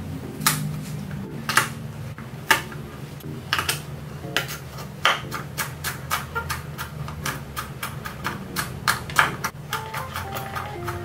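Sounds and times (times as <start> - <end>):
utensils and dishes clinking: 9.2 - 11.0.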